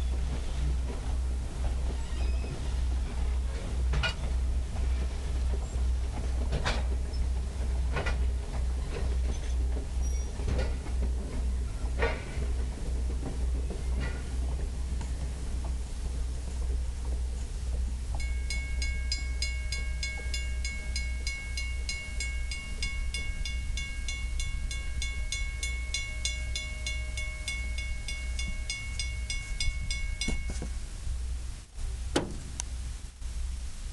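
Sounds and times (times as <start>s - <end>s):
railroad crossing bell ringing: 18.1s - 31.0s.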